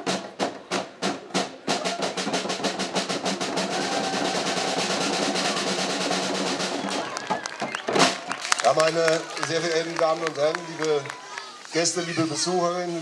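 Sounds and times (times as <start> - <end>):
hand drums beating: 0.0 - 8.2
fast drum roll: 0.0 - 12.5.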